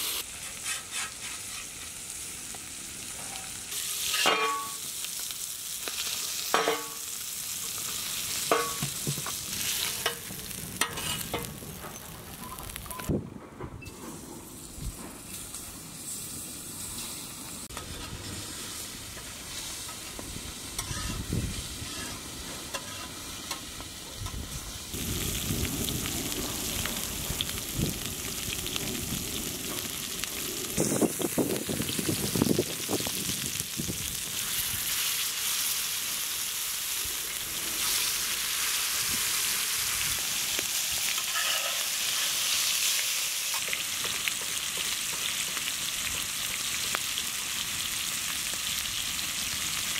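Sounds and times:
fish frying in oil: 0:24.9 - 0:49.9.

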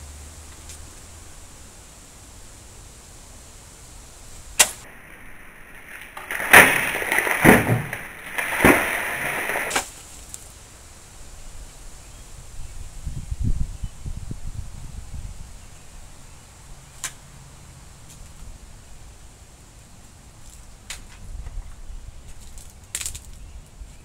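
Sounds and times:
plastic pieces falling: 0:04.8 - 0:09.9
water splashing onto concrete: 0:04.8 - 0:09.9.

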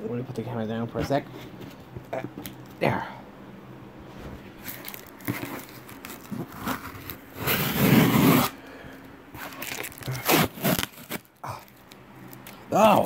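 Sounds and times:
cardboard scraping and crinkling: 0:04.1 - 0:08.6.

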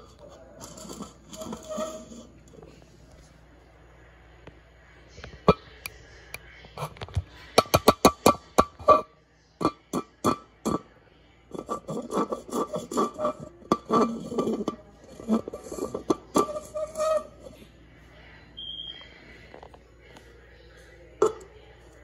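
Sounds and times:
plastic rubbing and scraping: 0:00.0 - 0:03.2, 0:11.5 - 0:17.6.

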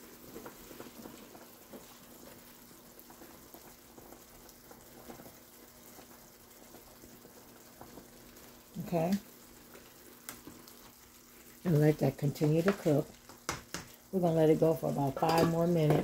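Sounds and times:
soup bubbling at a simmer: 0:00.0 - 0:16.0.

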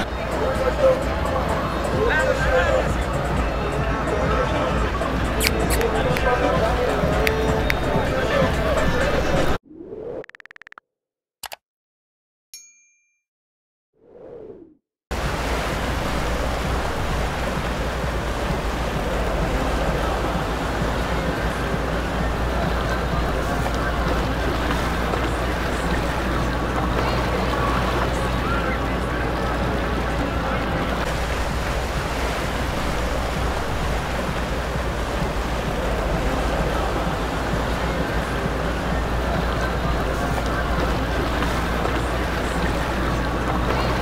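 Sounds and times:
sea water: 0:00.0 - 0:09.6, 0:15.1 - 0:44.0
wind on microphone: 0:14.2 - 0:44.0
low rumble: 0:15.2 - 0:44.0.

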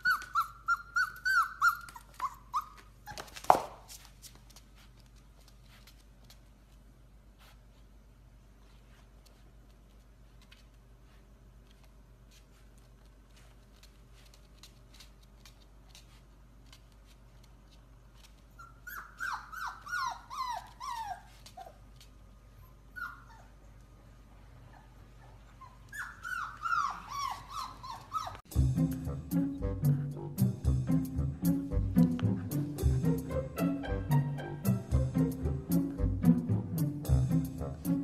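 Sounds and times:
puppy whimpering yips: 0:00.0 - 0:03.6, 0:18.5 - 0:21.8, 0:22.6 - 0:23.6, 0:24.7 - 0:28.5
music: 0:28.5 - 0:38.0.

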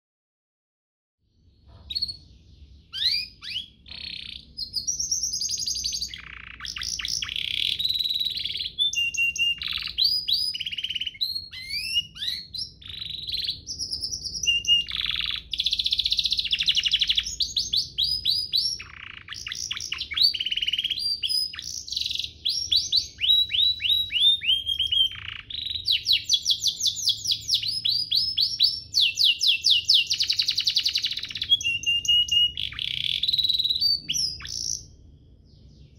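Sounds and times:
canary singing trills: 0:01.3 - 0:35.9.

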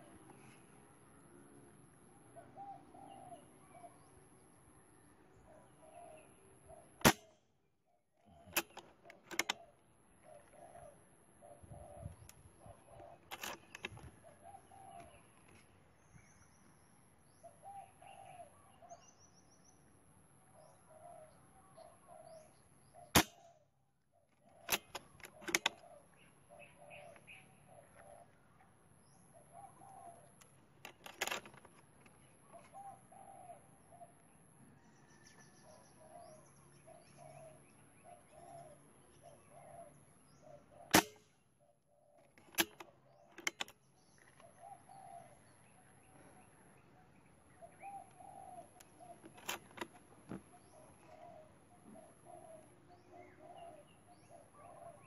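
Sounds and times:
doves cooing: 0:02.3 - 0:04.1, 0:08.2 - 0:15.5, 0:17.4 - 0:19.0, 0:20.6 - 0:23.5, 0:24.2 - 0:28.4, 0:29.3 - 0:31.5, 0:32.4 - 0:34.2, 0:35.1 - 0:41.2, 0:41.9 - 0:46.7, 0:47.5 - 0:55.0
small birds chirping: 0:02.4 - 0:55.0
air rifle shots: 0:07.0 - 0:07.4, 0:23.1 - 0:23.5, 0:40.9 - 0:41.3
light mechanical clicks: 0:08.4 - 0:10.6, 0:13.1 - 0:14.1, 0:24.4 - 0:25.8, 0:42.2 - 0:44.5.

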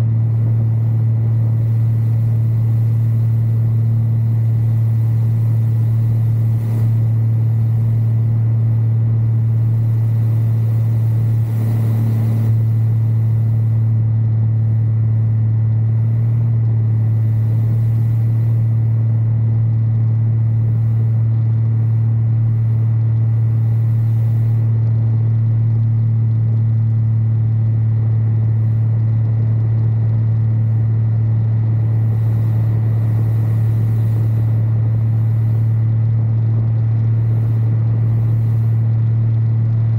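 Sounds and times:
light aircraft engine drone: 0:00.0 - 0:39.9.

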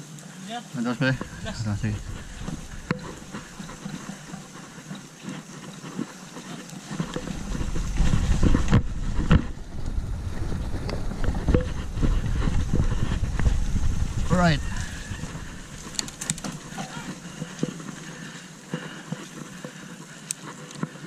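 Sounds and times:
bike tyres and rattle on dirt: 0:00.0 - 0:21.0
wind rumbling on microphone: 0:01.1 - 0:05.4, 0:06.8 - 0:18.3
bike knocking over bumps: 0:06.9 - 0:19.8.

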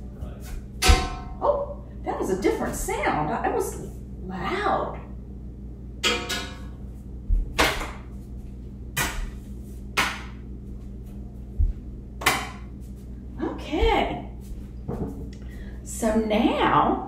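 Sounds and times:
wire hanger striking objects: 0:00.8 - 0:01.4, 0:06.0 - 0:06.8, 0:09.0 - 0:09.4, 0:12.2 - 0:12.8.

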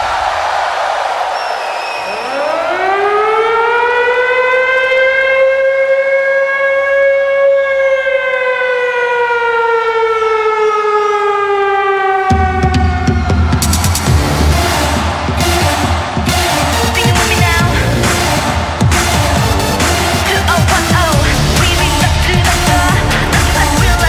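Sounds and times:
siren-like electronic wail: 0:01.9 - 0:23.4
electronic dance beat with bass: 0:12.4 - 0:24.0.

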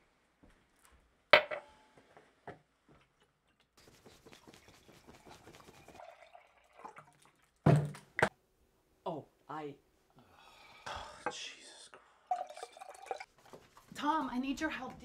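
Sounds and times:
juice pouring into glass: 0:06.0 - 0:07.5, 0:12.3 - 0:13.3.

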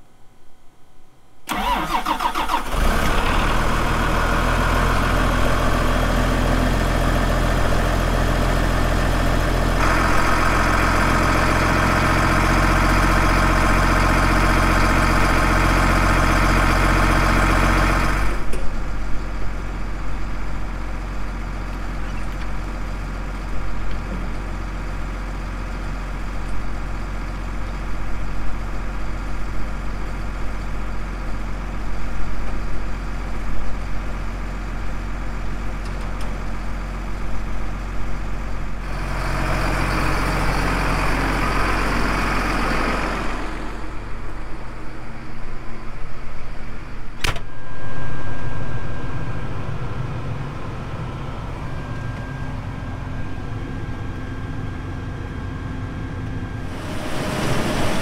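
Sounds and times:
engine starter cranking: 0:01.5 - 0:03.6
diesel engine idling: 0:01.5 - 0:58.0.

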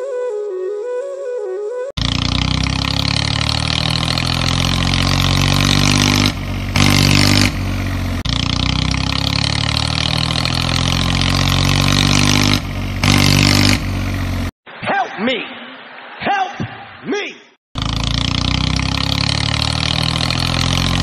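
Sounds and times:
tractor engine running: 0:02.0 - 0:14.6, 0:17.8 - 0:21.0.

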